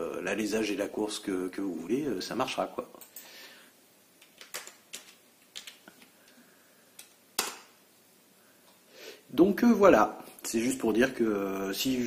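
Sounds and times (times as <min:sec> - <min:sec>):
keyboard and mouse clicks: 0:04.2 - 0:06.1.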